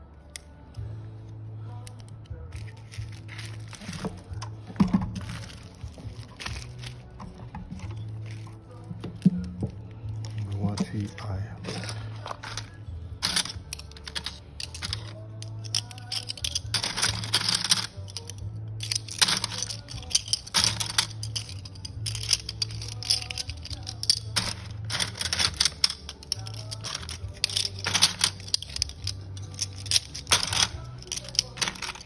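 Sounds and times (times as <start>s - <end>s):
background music: 0.0s - 32.0s
circuit boards clattering in plastic tub: 10.7s - 32.0s.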